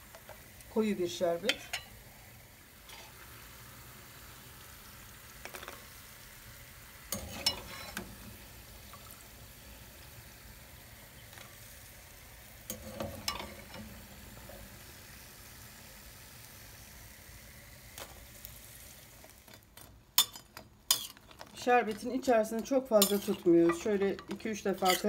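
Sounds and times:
dough frying in hot oil: 0.0s - 25.0s
metal skimmer clinking against pan: 23.0s - 25.0s.

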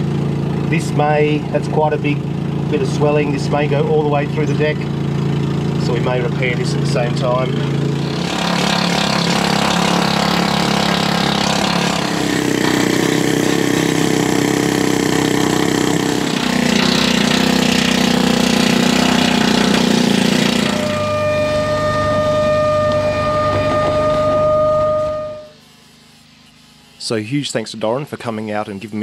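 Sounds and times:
steady whine: 5.8s - 29.0s
power tools cutting steel: 7.7s - 25.7s.

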